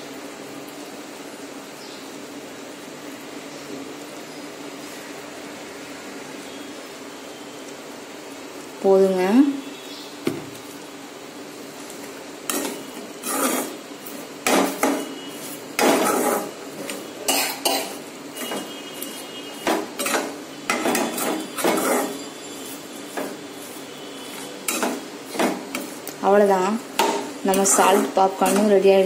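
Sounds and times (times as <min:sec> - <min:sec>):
spatula scraping metal pan: 0:12.4 - 0:26.1, 0:27.0 - 0:29.0.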